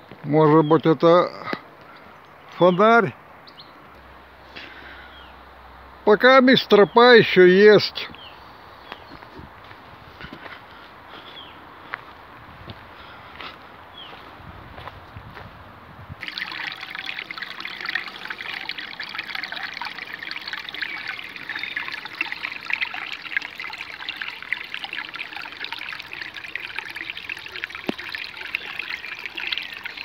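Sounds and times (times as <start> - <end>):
stream trickling over rocks: 16.2 - 30.0.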